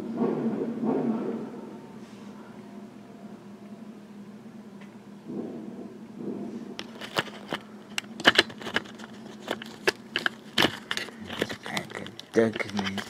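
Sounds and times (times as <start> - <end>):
faint low hum: 0.0 - 13.0
camera handling clicks and knocks: 6.8 - 13.0.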